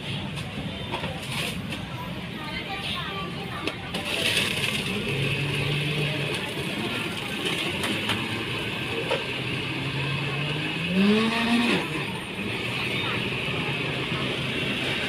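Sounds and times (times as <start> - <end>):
busy background noise: 0.0 - 15.0
motor hum rising in pitch: 9.8 - 12.1.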